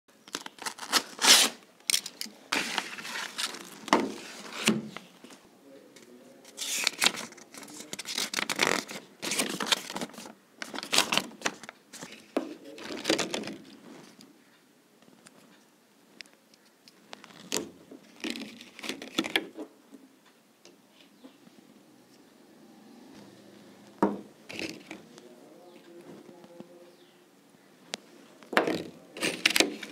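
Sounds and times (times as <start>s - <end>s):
plastic packaging crinkling: 0.2s - 5.4s, 6.5s - 14.2s, 17.2s - 19.5s, 24.5s - 25.2s, 28.5s - 29.9s
paper leaflet rustling: 0.3s - 5.4s, 6.4s - 14.2s, 28.6s - 29.9s.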